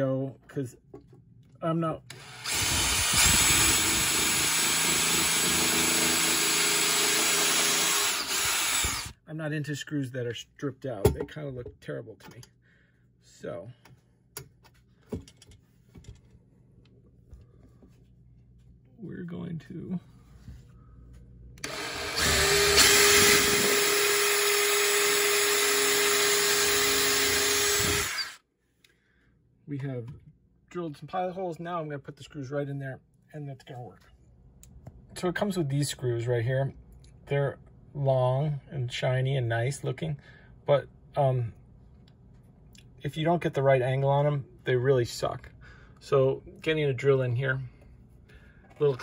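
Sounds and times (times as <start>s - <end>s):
cordless drill boring into wood: 2.1s - 9.2s, 21.6s - 28.4s.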